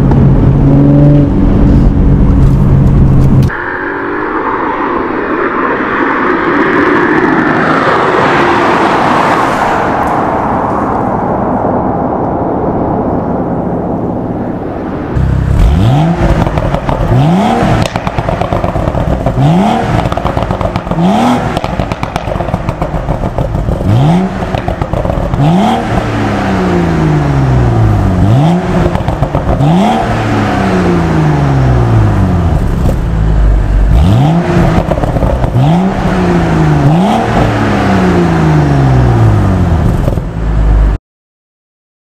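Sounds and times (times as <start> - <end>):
car engine revving: 13.9 - 41.0
exhaust pops and crackles: 15.2 - 26.2, 28.6 - 30.2, 32.4 - 33.2, 34.5 - 36.2, 39.8 - 40.4.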